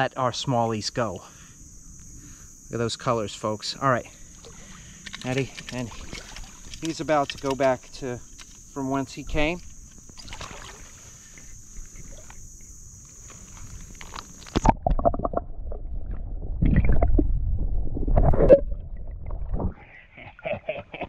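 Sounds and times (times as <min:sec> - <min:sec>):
steady high hiss: 0:00.0 - 0:14.7
muffled underwater rumbling: 0:14.6 - 0:20.0.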